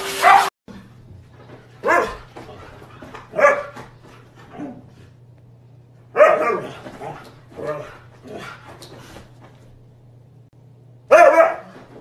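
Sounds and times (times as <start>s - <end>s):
dog barking: 0.2s - 0.5s, 1.8s - 2.3s, 3.3s - 3.8s, 6.1s - 7.9s, 11.1s - 11.8s.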